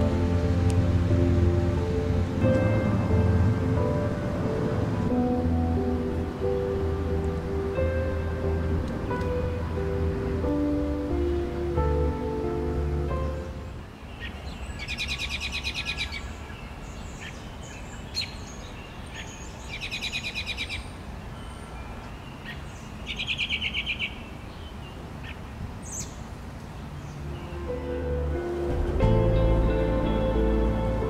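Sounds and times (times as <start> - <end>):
low outdoor rumble: 0.0 - 13.8, 27.2 - 31.0
songbird trills: 13.2 - 27.7.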